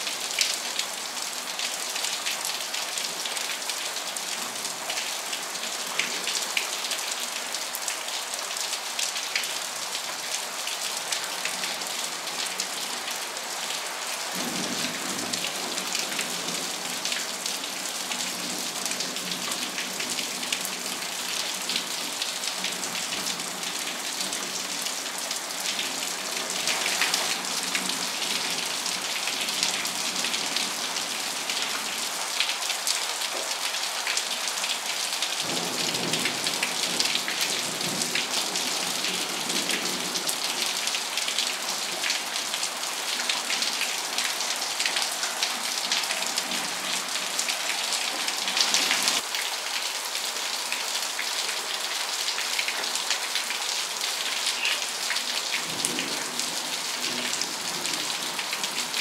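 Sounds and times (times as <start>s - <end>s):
rain falling on foliage: 0.0s - 59.0s.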